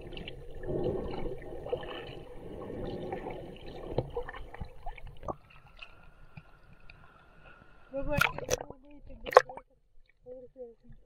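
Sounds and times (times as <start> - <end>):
bubbles: 0.0 - 5.6
water gurgling and sloshing: 0.0 - 11.0.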